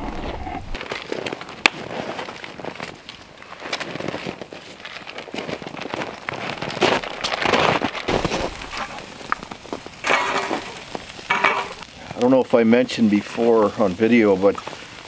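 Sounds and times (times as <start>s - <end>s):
campfire crackling and popping: 0.0s - 15.0s
meat sizzling on grill: 7.1s - 15.0s.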